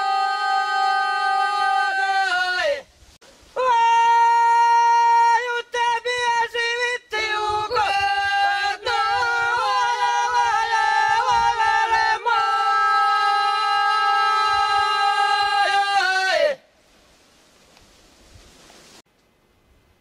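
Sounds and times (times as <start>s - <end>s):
women singing in harmony: 7.1s - 16.4s.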